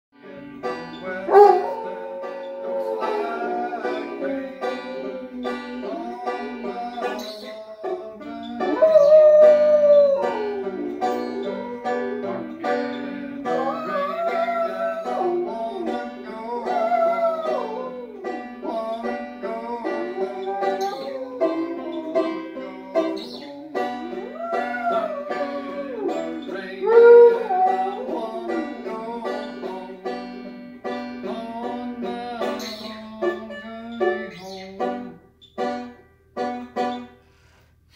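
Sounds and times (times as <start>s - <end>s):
banjo picking bluegrass tune: 0.1s - 37.4s
dog howling: 1.3s - 7.2s, 7.8s - 12.6s, 13.5s - 19.0s, 19.7s - 29.5s.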